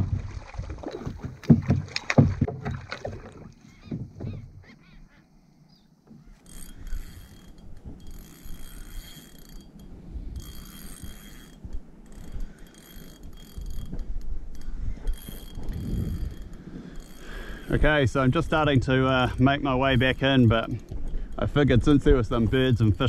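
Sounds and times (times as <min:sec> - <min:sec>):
fishing reel whirring: 0:06.2 - 0:18.0, 0:19.0 - 0:23.0.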